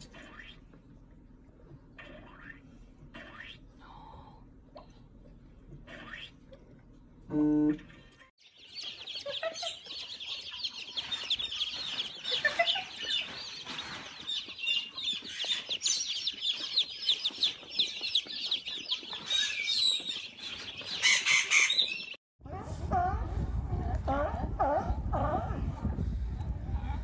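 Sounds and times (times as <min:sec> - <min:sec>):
baby chicks peeping: 0:08.4 - 0:22.2.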